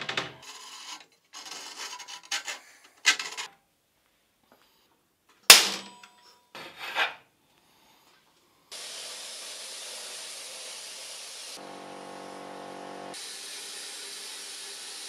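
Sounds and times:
steady hiss: 8.7 - 11.6.

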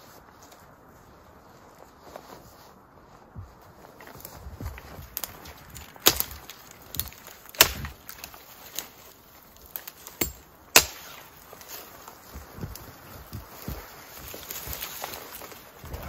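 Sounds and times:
dry branches snapping: 3.6 - 16.0.

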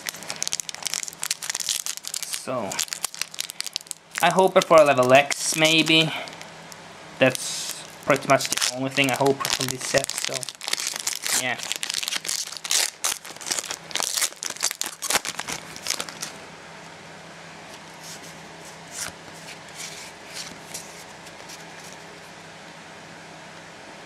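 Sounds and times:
foil wrapper crinkling and tearing: 0.0 - 6.5, 7.2 - 16.4, 18.1 - 22.0
faint steady hum: 0.0 - 24.0
cards rustling and tapping: 4.2 - 6.1, 18.9 - 22.0.

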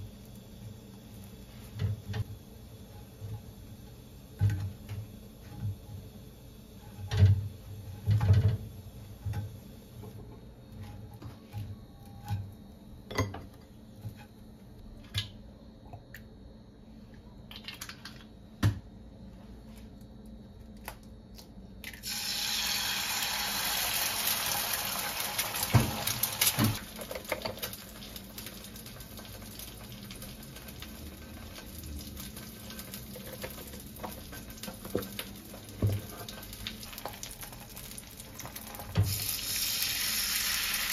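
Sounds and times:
egg sizzling in oil: 21.9 - 40.9.

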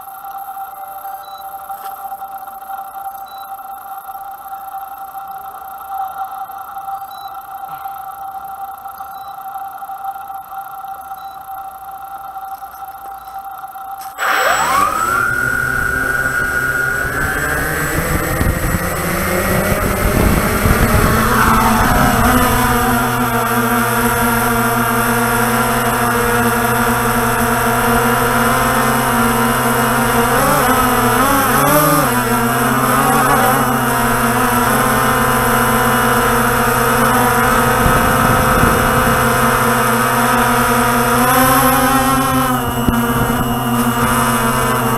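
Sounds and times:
drone motors whining: 0.0 - 44.9
propeller wash rumble: 14.2 - 44.9.

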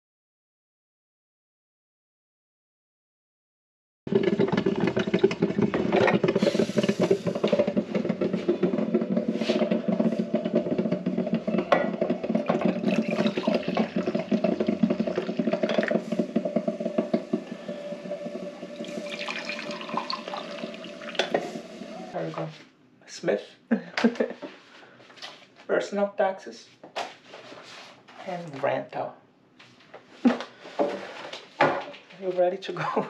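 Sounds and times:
coffee pouring into mugs: 4.1 - 22.2.

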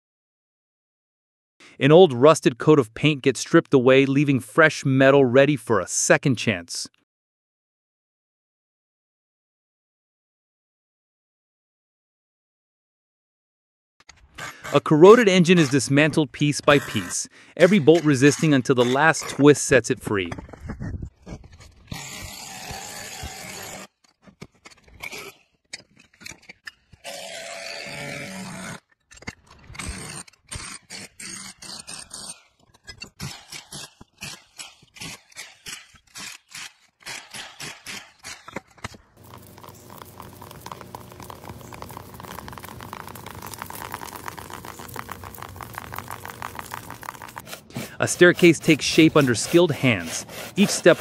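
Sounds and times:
metal tool scraping metal: 14.4 - 19.7, 47.3 - 51.0.

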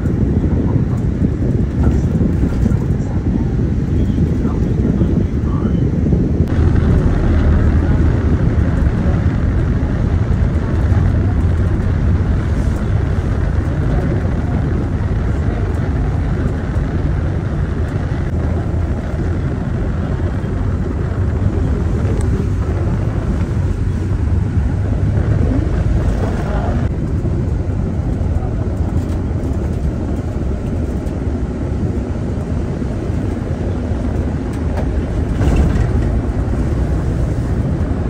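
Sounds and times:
car engine: 6.4 - 38.0
tyres rolling on wet pavement: 19.5 - 38.0.

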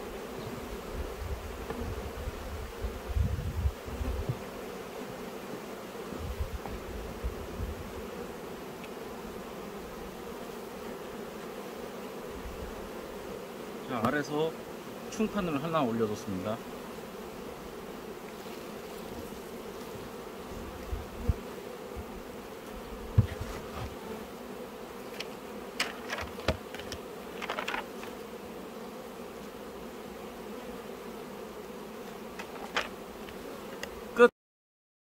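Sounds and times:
honeybees buzzing: 0.0 - 34.3
short knocks and clicks: 25.1 - 28.1.

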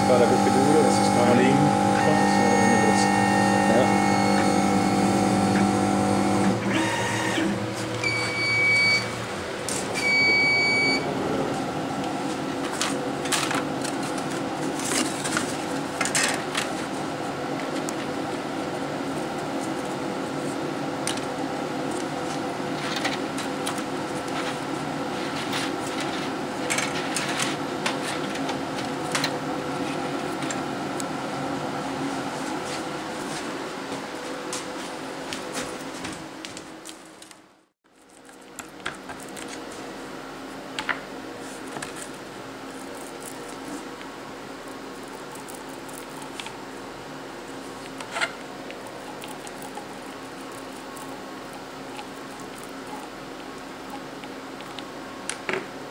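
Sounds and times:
laser cutter cutting wood: 0.0 - 7.7
steady hum: 0.0 - 55.9.

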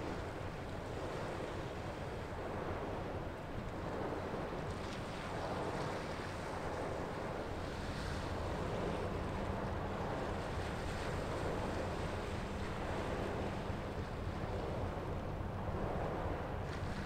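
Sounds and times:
wind: 0.0 - 17.0
ship engine drone: 7.4 - 16.9.

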